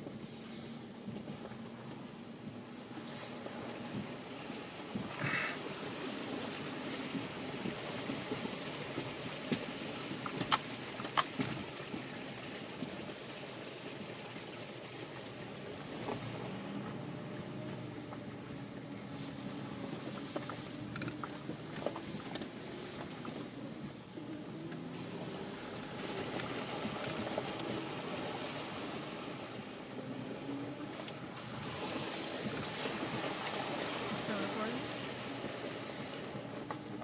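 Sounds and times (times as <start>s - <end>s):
car engine running: 14.8s - 37.0s.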